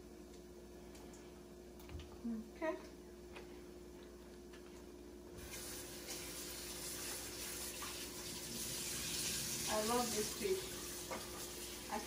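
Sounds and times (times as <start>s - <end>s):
water running from tap: 5.4s - 12.0s.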